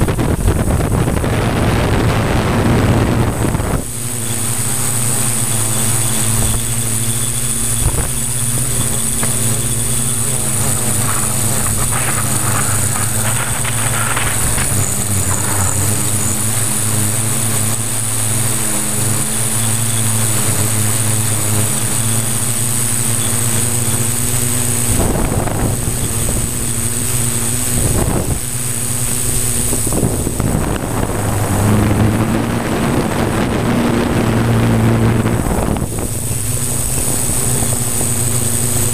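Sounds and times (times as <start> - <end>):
drone motors buzzing: 0.0 - 38.9
short rushes of noise: 7.7 - 17.8.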